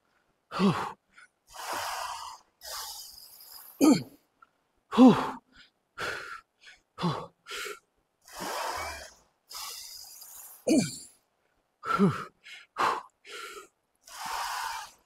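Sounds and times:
man breathing hard: 0.0 - 4.1, 4.9 - 11.2, 11.8 - 15.0
man grunting: 3.8 - 4.1, 4.9 - 5.4, 10.6 - 11.1.

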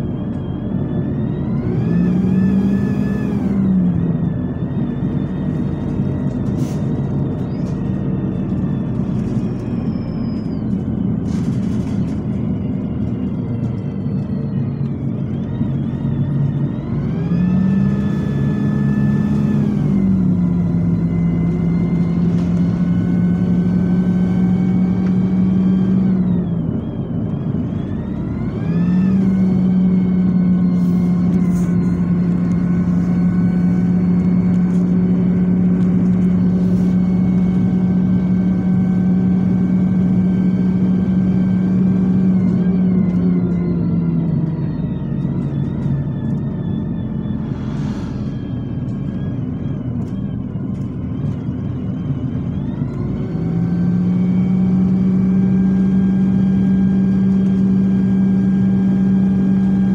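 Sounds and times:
bus diesel engine under load: 0.0 - 59.9.

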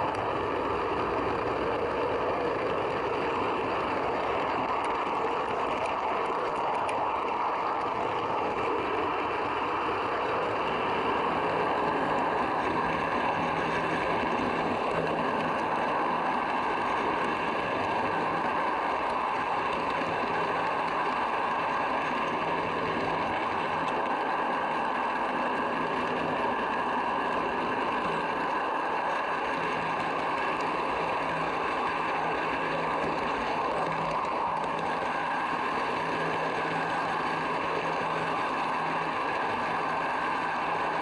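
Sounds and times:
model train wheels rumbling on rails: 0.0 - 41.0.

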